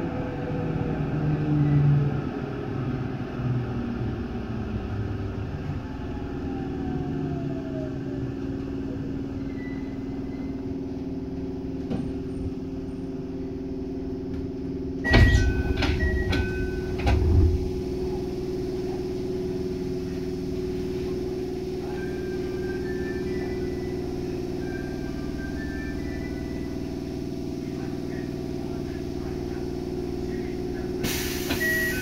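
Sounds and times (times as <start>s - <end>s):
electric train hum: 0.0s - 32.0s
loud rumble and clatter: 10.8s - 21.7s.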